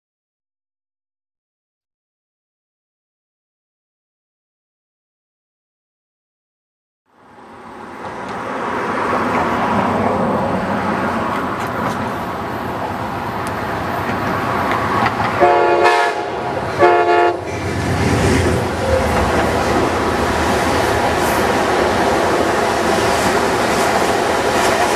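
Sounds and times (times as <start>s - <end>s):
diesel train passing: 7.1s - 24.9s
heavy rumble of train cars: 7.2s - 24.9s
train horn blasts: 15.4s - 17.6s.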